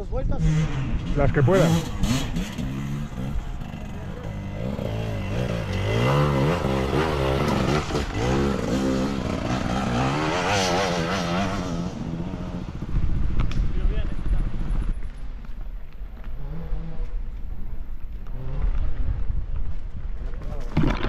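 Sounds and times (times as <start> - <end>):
dirt bike engine revving: 0.3 - 13.2, 18.2 - 19.2.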